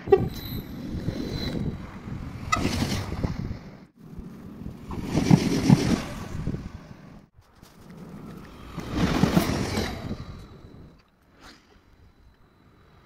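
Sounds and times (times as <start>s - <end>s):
wind noise on microphone: 0.0s - 7.2s, 8.1s - 11.0s
train rumble: 4.1s - 11.0s.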